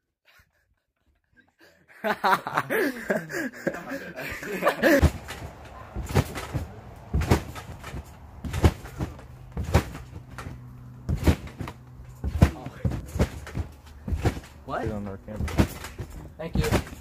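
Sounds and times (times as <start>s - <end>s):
voices: 2.7s - 8.4s
trampoline mat thuds: 4.8s - 17.0s.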